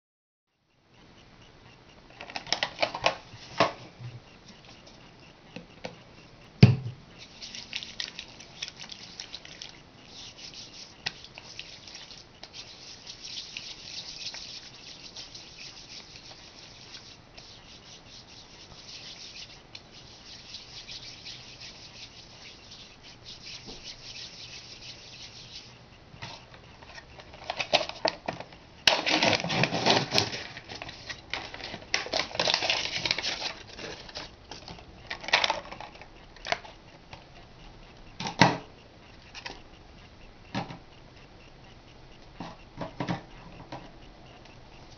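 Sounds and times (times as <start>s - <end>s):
palms rubbing together: 7.2s - 26.5s, 29.9s - 34.3s
plastic packaging crinkling: 28.9s - 34.3s.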